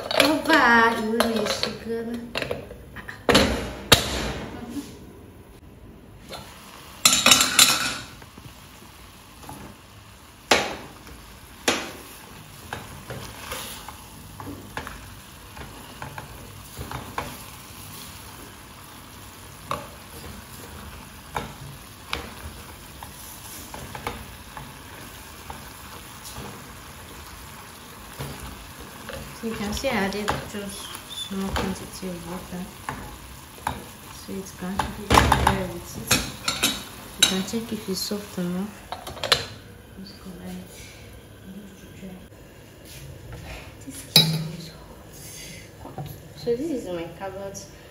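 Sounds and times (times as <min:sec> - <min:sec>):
chicken sizzling in saucepan: 0:06.1 - 0:47.9
metal pot lid clatter: 0:44.1 - 0:44.7.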